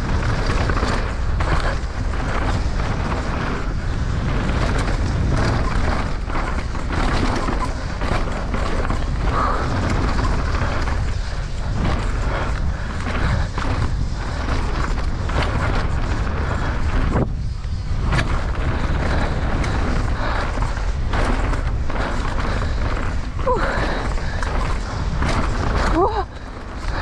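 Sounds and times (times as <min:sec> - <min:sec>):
bike knocks and rattles: 0:00.0 - 0:27.0
wind rumble on microphone: 0:00.0 - 0:27.0.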